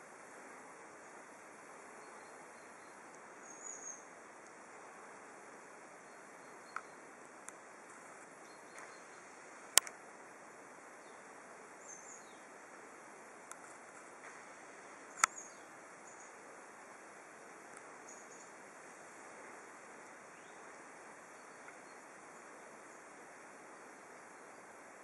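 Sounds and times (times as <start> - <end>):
faint steady hiss: 0.0 - 25.0
sharp clicks: 9.7 - 10.0, 15.1 - 15.4.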